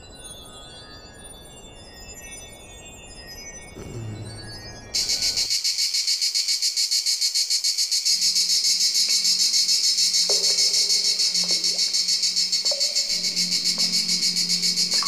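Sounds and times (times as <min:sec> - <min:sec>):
cricket chirping: 0:03.6 - 0:15.0
low hum: 0:03.8 - 0:05.5.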